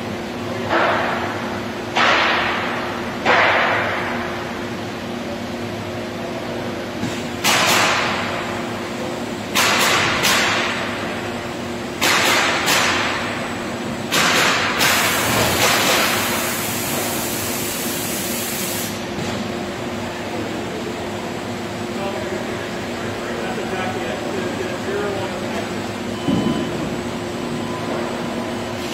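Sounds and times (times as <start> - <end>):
machinery humming: 0.0 - 28.9
air release hisses: 14.8 - 19.0.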